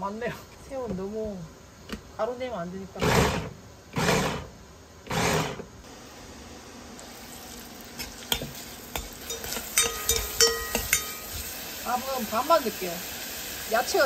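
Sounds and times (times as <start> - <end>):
low steady hiss: 0.0 - 14.0
food chopper pulses: 3.0 - 7.0.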